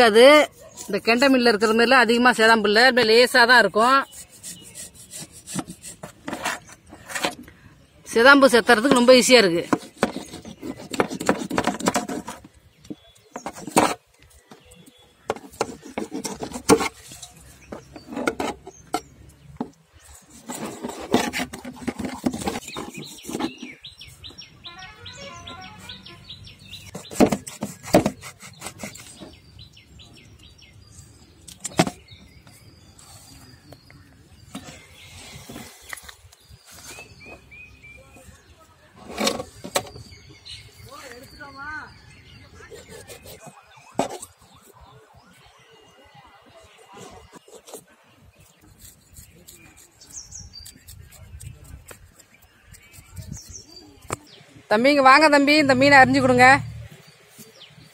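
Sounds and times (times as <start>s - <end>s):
knife scraping fish scales: 4.0s - 7.4s, 15.3s - 18.6s, 26.9s - 29.3s, 42.6s - 44.4s, 47.0s - 53.8s.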